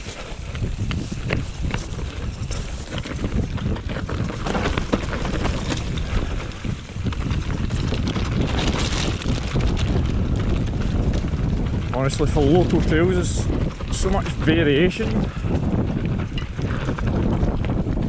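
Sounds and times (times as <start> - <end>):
bike rattling over bumps: 0.0 - 18.0
bike tyres rolling on dirt: 0.0 - 18.0
wind rumbling on microphone: 0.0 - 18.0.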